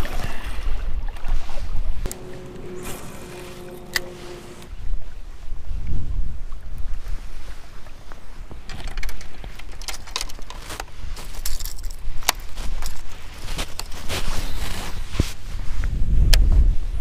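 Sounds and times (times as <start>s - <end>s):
wind rumble on microphone: 15.0s - 17.0s.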